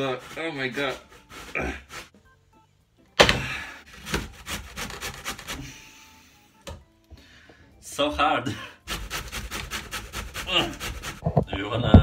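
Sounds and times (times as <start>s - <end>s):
vegetables rasping on a grater: 0.0s - 2.1s, 4.0s - 5.8s, 8.9s - 11.2s.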